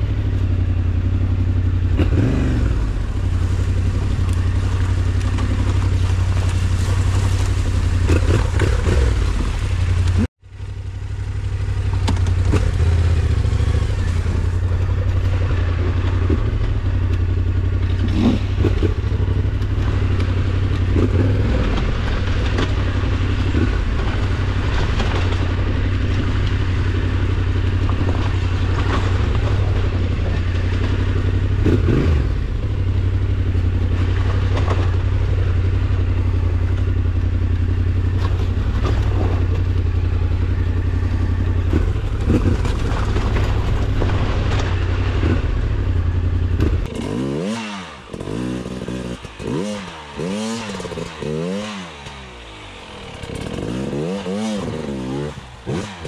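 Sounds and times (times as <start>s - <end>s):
knocks and clatter from motorcycle: 0.0s - 56.0s
motorcycle engine running: 0.0s - 56.0s.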